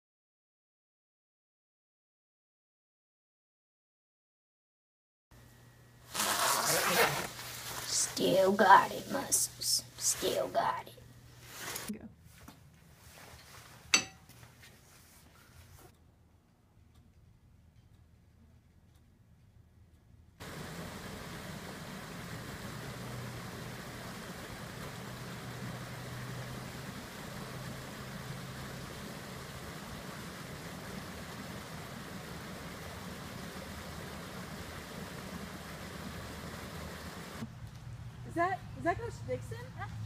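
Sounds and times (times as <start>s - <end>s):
low steady hum: 5.4s - 40.0s
waterfall splashing into pond: 20.4s - 37.5s.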